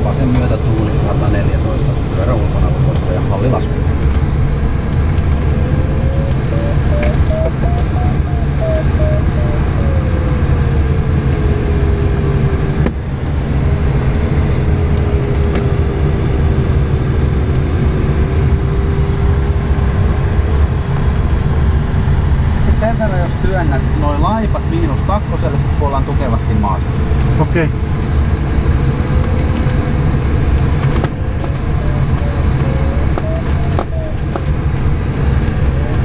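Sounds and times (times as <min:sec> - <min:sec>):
glider cockpit low rumble: 0:00.0 - 0:36.0
electronic tone and beeps: 0:05.4 - 0:11.6, 0:31.7 - 0:34.3.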